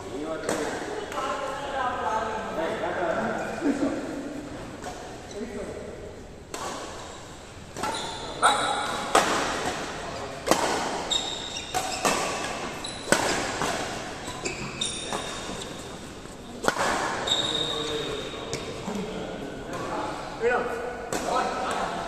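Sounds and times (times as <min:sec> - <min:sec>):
shoes squeaking on court: 0:04.6 - 0:05.8, 0:06.6 - 0:18.9
rackets hitting shuttlecock: 0:06.4 - 0:17.7, 0:21.1 - 0:22.0.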